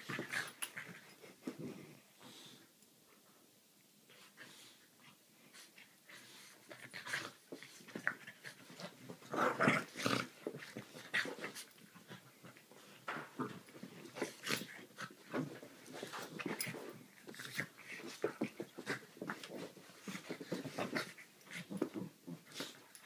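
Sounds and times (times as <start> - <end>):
dogs growling in play: 6.0 - 23.0.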